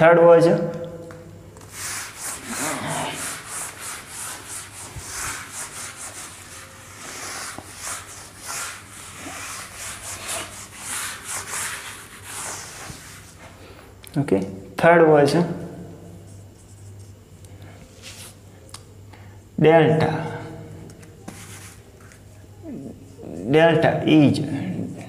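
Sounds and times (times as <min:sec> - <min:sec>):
eraser rubbing on whiteboard: 0:01.6 - 0:13.5, 0:21.3 - 0:21.9.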